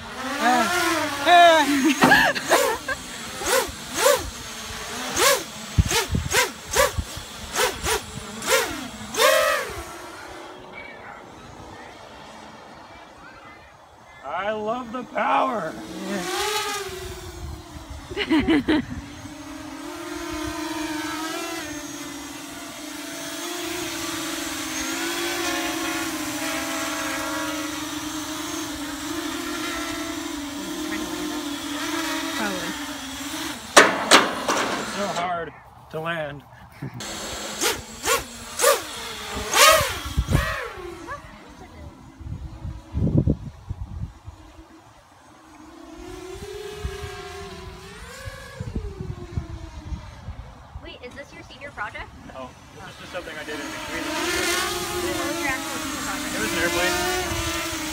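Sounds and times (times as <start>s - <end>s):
drone motor whine: 0.0s - 35.8s, 36.8s - 57.9s.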